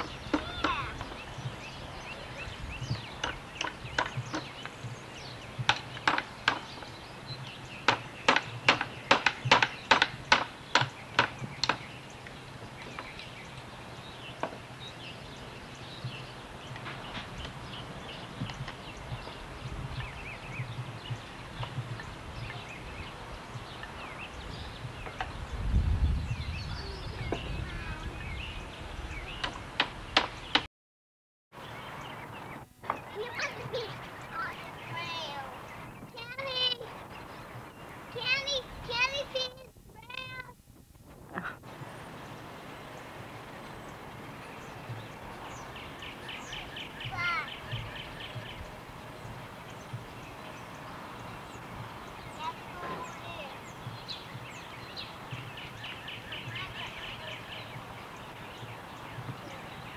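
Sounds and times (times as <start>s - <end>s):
low wind rumble on microphone: 0.0s - 30.6s, 36.8s - 59.9s
birds chirping: 0.0s - 30.7s, 31.5s - 59.9s
hammer knocking on wood boards: 2.8s - 4.6s, 5.6s - 6.8s, 7.9s - 11.8s.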